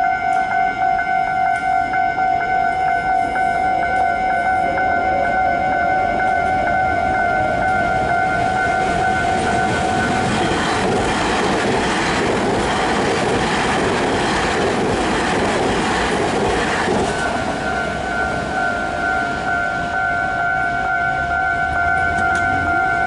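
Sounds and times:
crossing warning bell dinging: 0:00.0 - 0:23.0
train wheels rumbling on rails: 0:06.0 - 0:23.0.

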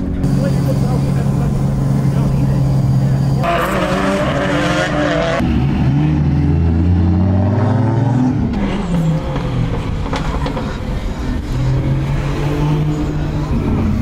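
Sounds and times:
car engine revving high: 0:00.2 - 0:10.2.

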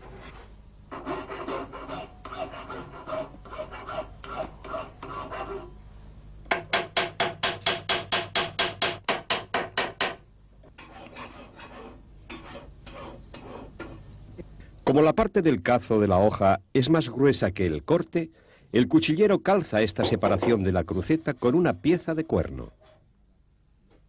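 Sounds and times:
file rasping on metal: 0:00.9 - 0:05.8, 0:10.8 - 0:14.0, 0:20.3 - 0:23.0.

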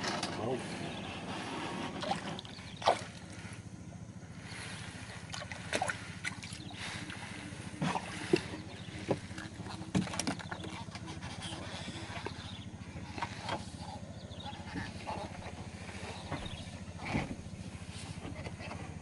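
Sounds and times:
low hum: 0:00.0 - 0:19.0
water splashes and drips: 0:05.3 - 0:06.6.

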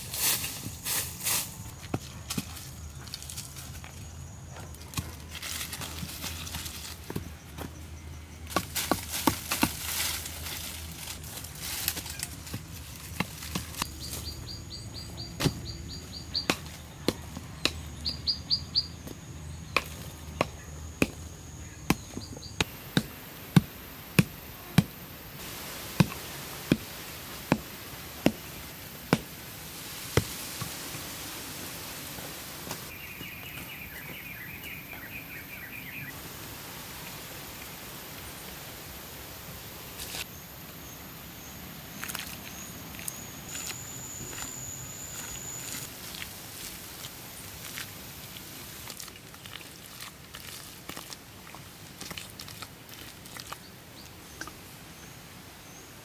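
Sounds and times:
birds chirping: 0:13.6 - 0:25.3, 0:31.8 - 0:36.2
wood being chopped: 0:15.3 - 0:15.8, 0:16.4 - 0:17.9, 0:19.7 - 0:21.2, 0:21.8 - 0:25.0, 0:26.0 - 0:28.5.

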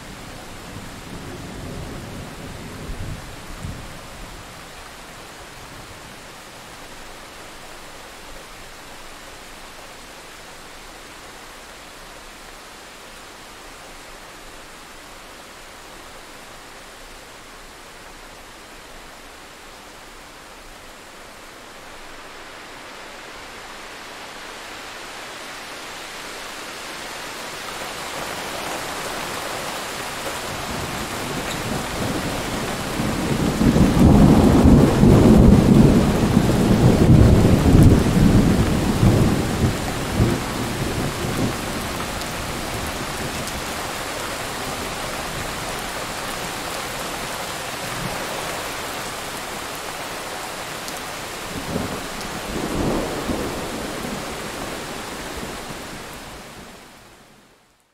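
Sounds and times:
heavy rain: 0:00.0 - 0:57.9
thunder rumbling: 0:30.5 - 0:43.5.

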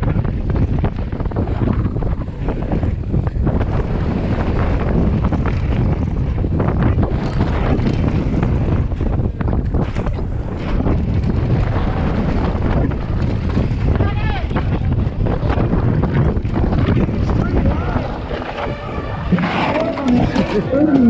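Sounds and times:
bike rattling over rough ground: 0:00.0 - 0:21.0
wind buffeting microphone: 0:00.0 - 0:21.0
tyres on dirt and gravel: 0:15.5 - 0:21.0.

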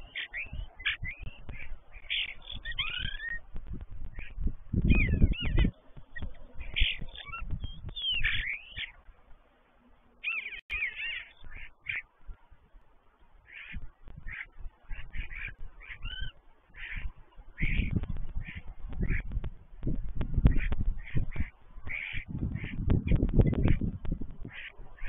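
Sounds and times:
starlings singing: 0:00.0 - 0:09.1, 0:10.2 - 0:12.1.

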